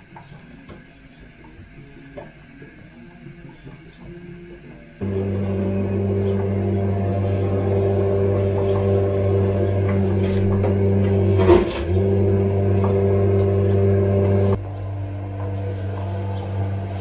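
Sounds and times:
low mechanical hum: 2.9s - 17.0s.

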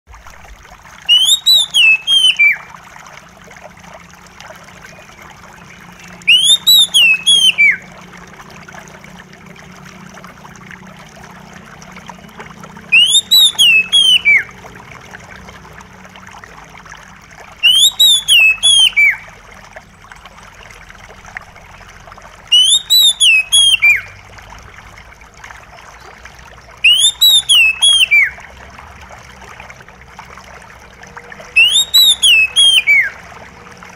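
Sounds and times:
water trickling: 0.1s - 33.9s
bird song: 1.1s - 2.6s, 4.8s - 7.8s, 12.1s - 14.5s, 17.6s - 19.2s, 22.5s - 24.2s, 26.0s - 28.4s, 31.6s - 33.2s.

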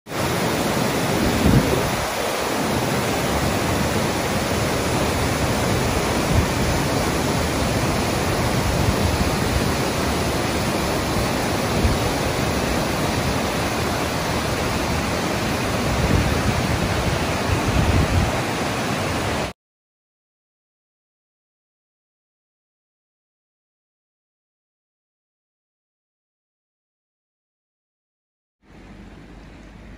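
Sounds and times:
waterfall rushing: 0.1s - 19.5s.

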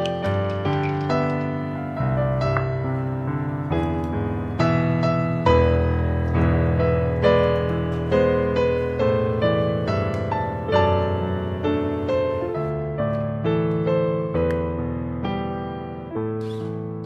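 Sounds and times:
slow solo piano: 0.0s - 17.0s.

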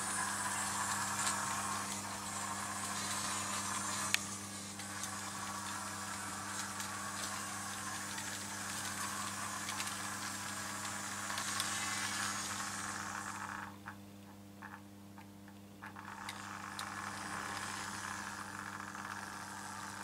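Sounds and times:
low hum: 0.0s - 13.9s
model train rolling on track: 0.0s - 14.0s, 15.9s - 20.0s
faint clicks: 0.4s - 12.7s.

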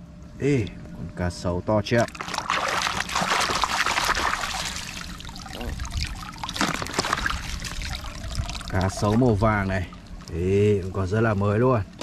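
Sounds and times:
water splashing in a plastic basin: 2.0s - 10.6s.

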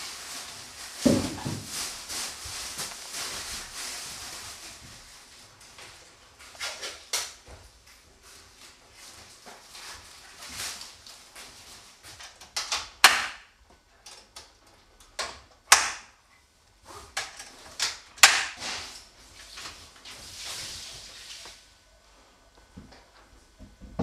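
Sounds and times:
rustling: 0.0s - 7.1s.

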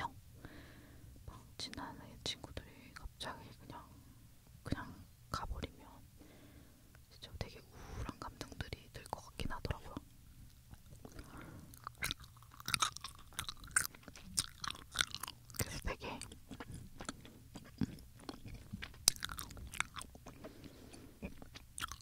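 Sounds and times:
gummy sweets chewing: 9.9s - 22.0s.

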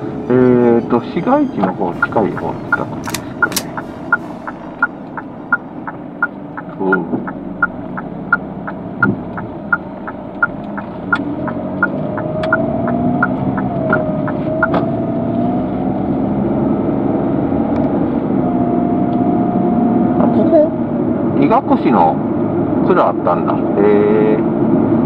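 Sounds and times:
car engine and road noise: 0.0s - 25.0s
turn signal ticking: 1.2s - 15.8s.

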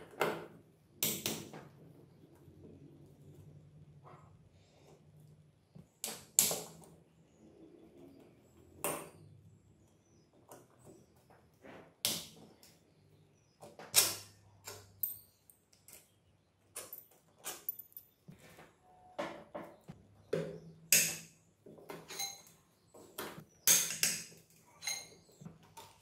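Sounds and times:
metallic clinks on metal: 24.7s - 25.2s.

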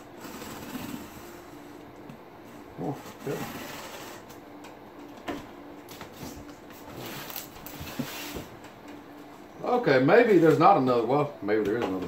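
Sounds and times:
box sliding on wooden table: 2.8s - 4.3s.

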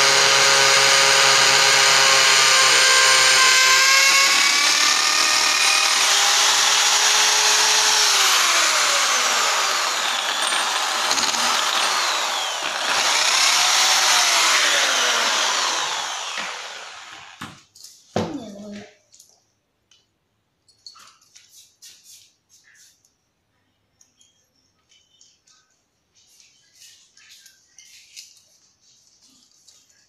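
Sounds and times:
electric drill boring into masonry: 0.0s - 17.4s.

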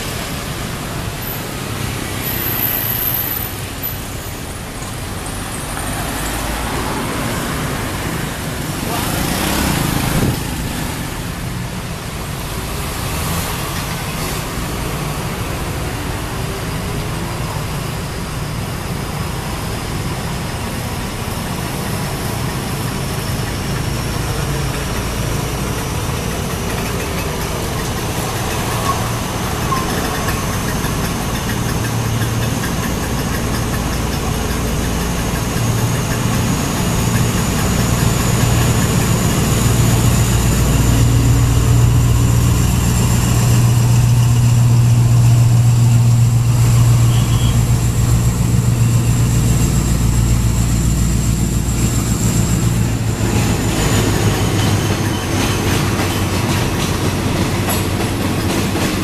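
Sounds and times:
engine humming: 19.4s - 59.0s.

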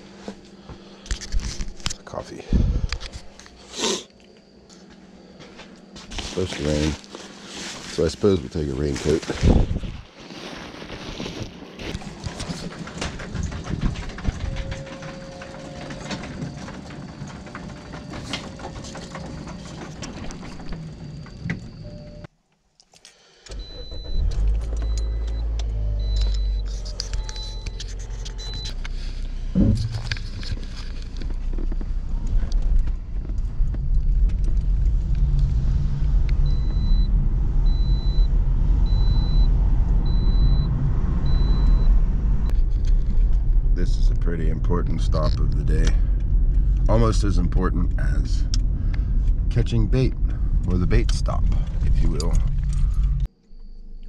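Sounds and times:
steady low rumble: 1.4s - 3.6s, 6.1s - 10.1s, 10.8s - 22.3s, 23.5s - 53.3s
rustling handling noise: 4.8s - 20.8s
high electronic beeps: 37.7s - 39.5s.

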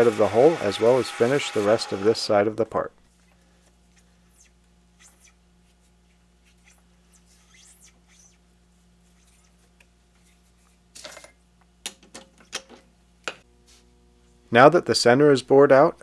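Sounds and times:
low steady hum: 1.8s - 16.0s
sandpaper scratching on metal: 6.5s - 8.4s.

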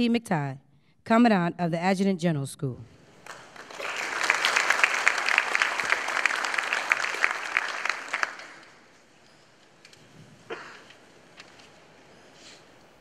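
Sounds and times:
audience applauding: 3.2s - 8.9s.

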